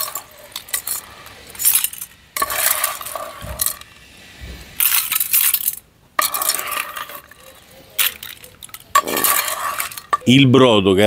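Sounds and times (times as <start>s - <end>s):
shells clattering: 0.0s - 3.9s, 4.8s - 6.6s, 8.0s - 10.2s
utensil scraping a pan: 0.0s - 4.1s, 4.7s - 10.3s.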